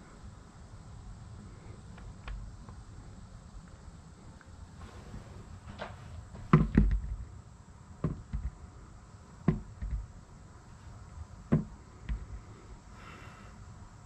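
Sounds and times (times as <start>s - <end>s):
knocks on wooden table: 6.5s - 7.2s, 9.5s - 10.0s.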